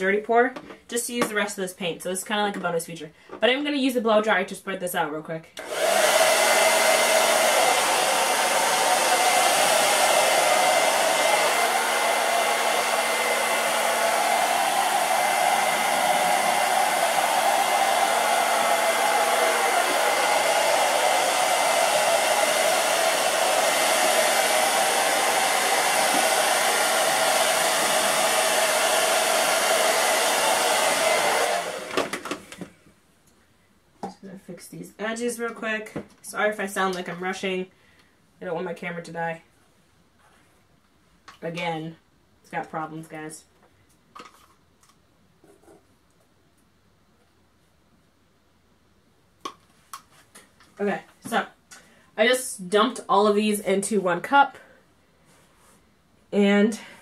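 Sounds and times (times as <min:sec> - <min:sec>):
blow dryer running: 0:05.6 - 0:32.7.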